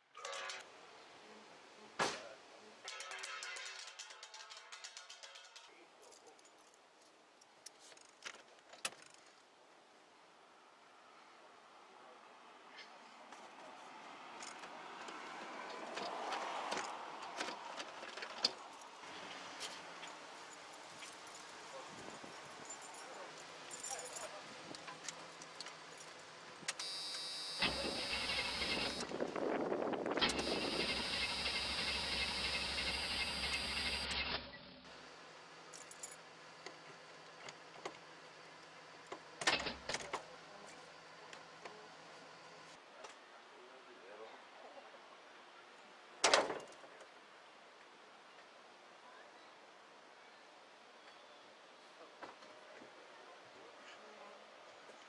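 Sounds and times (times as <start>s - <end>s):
small clicks and rustles: 2.9s - 9.5s.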